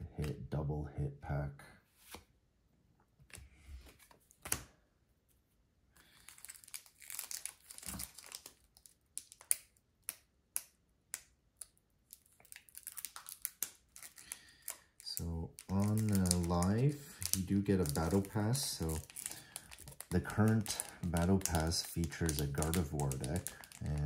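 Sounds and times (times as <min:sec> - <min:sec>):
foil wrapper crinkling: 0:06.0 - 0:09.8, 0:12.1 - 0:24.0
trading cards clicking: 0:12.5 - 0:24.0.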